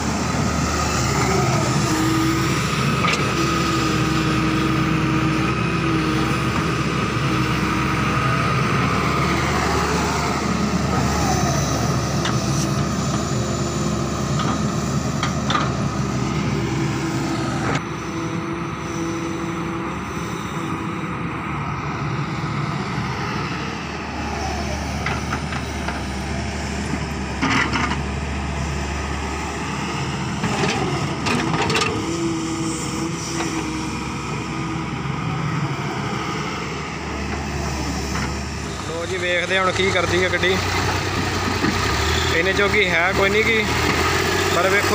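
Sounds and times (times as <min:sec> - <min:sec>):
diesel engine running: 0:00.0 - 0:44.9
excavator bucket digging soil: 0:30.4 - 0:32.3.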